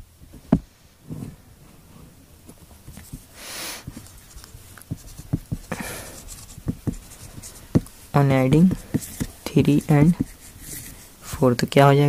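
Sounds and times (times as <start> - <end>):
breathy rustle: 3.0 - 8.1, 8.7 - 11.4
marker scratching on paper: 3.8 - 11.1.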